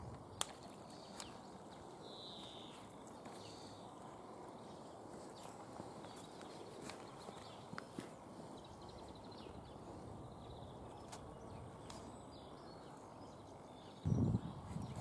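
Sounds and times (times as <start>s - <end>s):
wind rumble on microphone: 0.0s - 0.4s, 14.0s - 15.0s.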